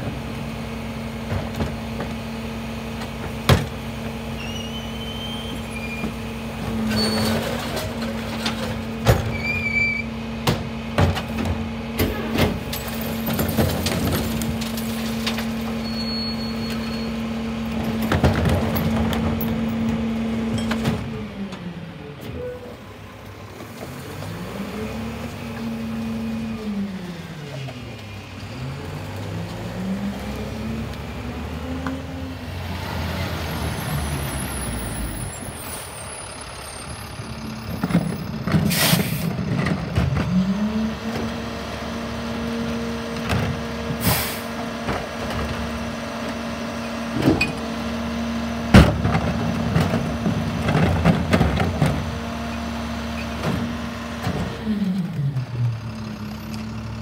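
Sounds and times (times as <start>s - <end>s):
garbage truck engine revving: 23.8s - 57.0s
short air hisses: 44.0s - 44.5s.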